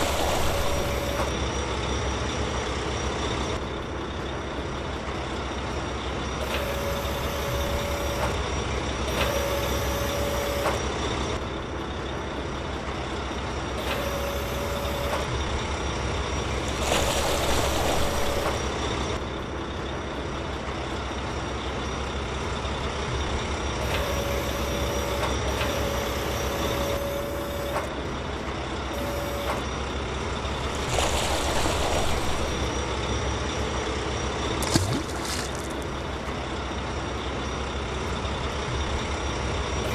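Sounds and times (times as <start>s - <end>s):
hydraulic whine: 0.0s - 3.8s, 5.9s - 11.8s, 13.3s - 19.4s, 22.6s - 36.3s, 38.7s - 39.9s
excavator engine running: 0.0s - 39.9s.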